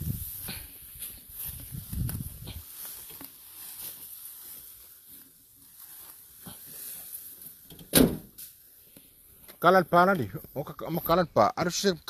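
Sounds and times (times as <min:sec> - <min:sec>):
rustling of cut grass: 0:00.0 - 0:12.0
loud thump: 0:07.9 - 0:08.3.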